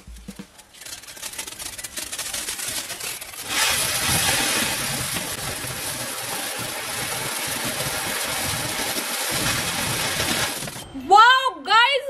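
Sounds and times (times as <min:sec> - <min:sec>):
firework fountain hissing: 0:03.3 - 0:10.9.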